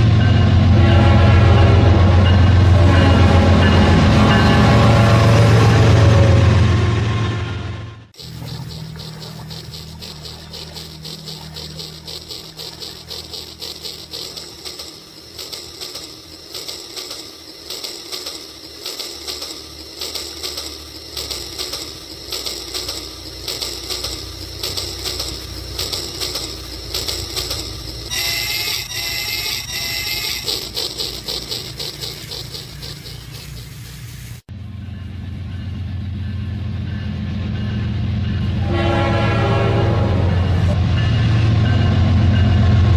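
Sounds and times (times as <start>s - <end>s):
toy train clicking rattle: 8.2s - 34.4s
toy train tooting: 8.2s - 34.4s.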